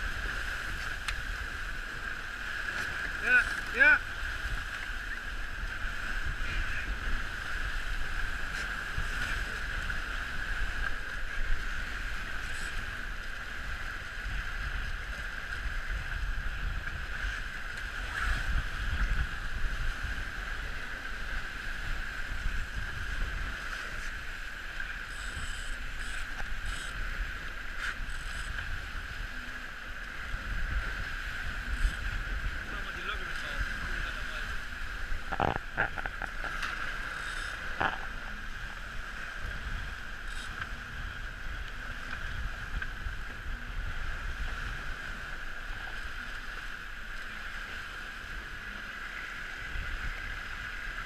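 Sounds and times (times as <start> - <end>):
wind buffeting microphone: 0.0 - 29.4, 30.0 - 46.8
water splashes: 0.0 - 51.0
water and spray hissing: 23.5 - 29.1, 30.8 - 40.9.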